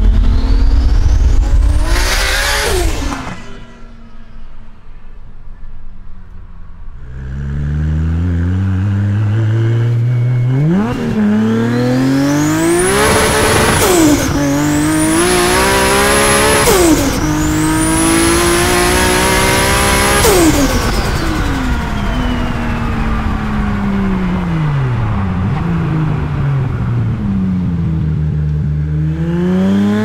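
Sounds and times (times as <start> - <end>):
car engine accelerating hard: 0.0 - 4.3, 7.0 - 30.0
rush of noise at gear shifts: 7.0 - 30.0.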